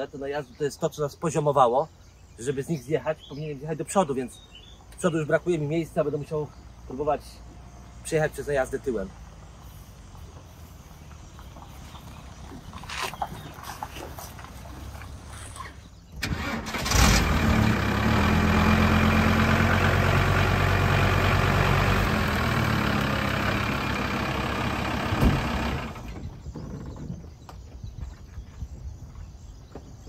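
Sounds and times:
van engine starting and running: 11.0s - 26.7s.

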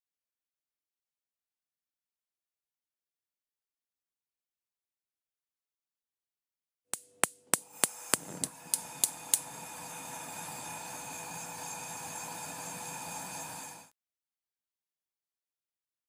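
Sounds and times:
steady hissing wash: 7.2s - 13.9s.

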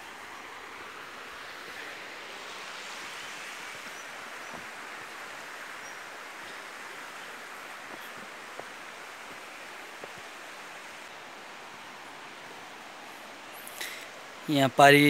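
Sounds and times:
river water rushing: 0.0s - 15.0s.

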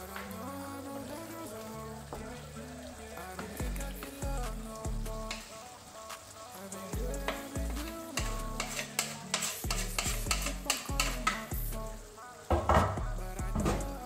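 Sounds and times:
sauce sizzling in a frying pan: 0.0s - 14.0s
background music with bass line: 3.4s - 5.5s, 6.9s - 8.9s, 9.6s - 14.0s.

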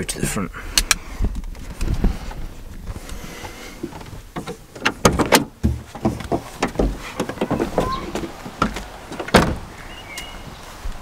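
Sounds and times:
van door knocks and clunks: 3.9s - 9.8s.

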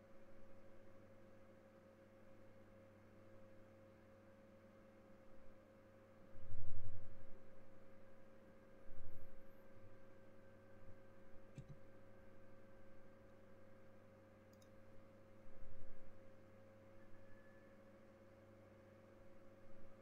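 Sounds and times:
mouse clicks: 11.6s - 11.8s, 14.5s - 14.8s.

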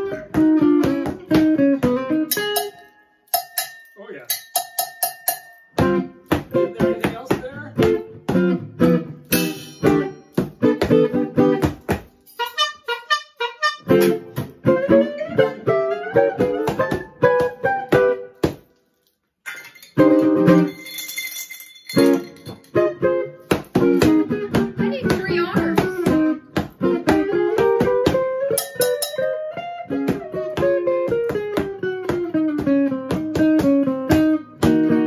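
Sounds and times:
guitar playing chords: 0.0s - 3.3s, 5.7s - 18.4s, 20.0s - 20.7s, 22.0s - 35.0s
hand percussion: 0.8s - 8.4s, 9.3s - 12.7s, 20.0s - 29.5s.

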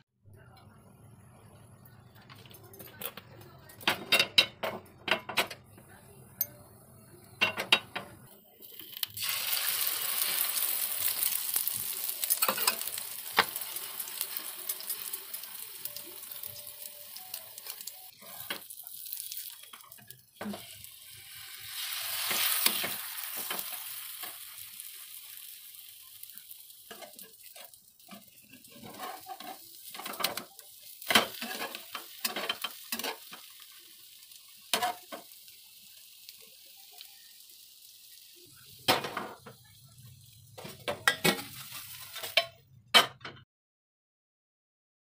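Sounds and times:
omelette sizzling in pan: 8.4s - 42.5s
pan clatter: 12.2s - 13.7s
metal spatula scraping pan: 28.1s - 30.4s, 31.2s - 33.2s.

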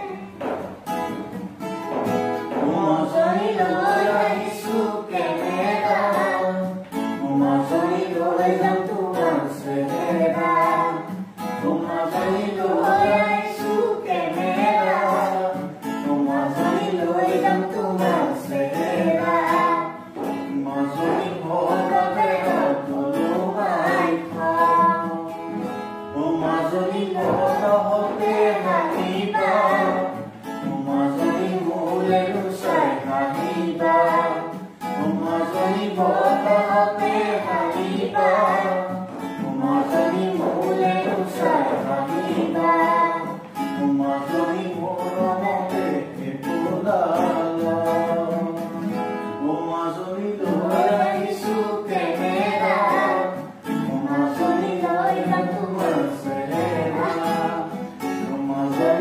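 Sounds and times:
man and boy singing: 0.0s - 59.0s
strummed acoustic guitars: 0.0s - 59.0s.

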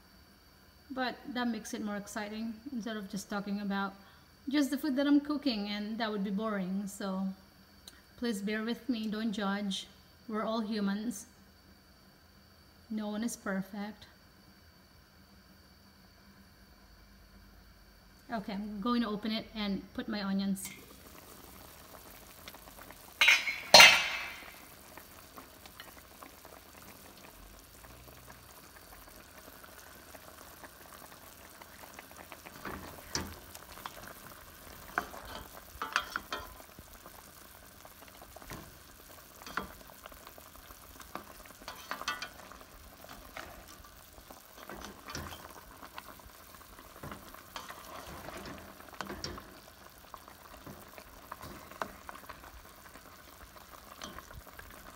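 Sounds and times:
low bubbling sizzle: 0.0s - 54.9s
metal pot lid clanking: 23.2s - 24.5s, 41.7s - 42.4s
utensil stirring and scraping pan: 41.6s - 42.4s, 47.0s - 49.6s.

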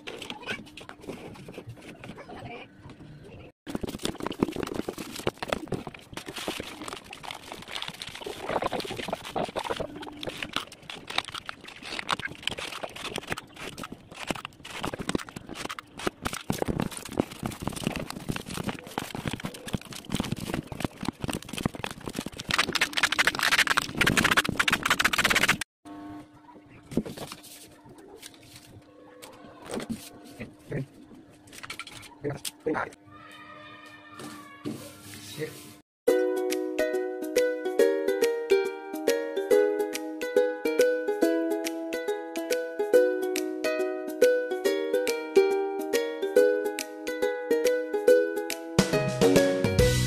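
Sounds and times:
packing tape crackling: 3.7s - 25.6s
plastic stretch film rustling: 3.8s - 25.6s.

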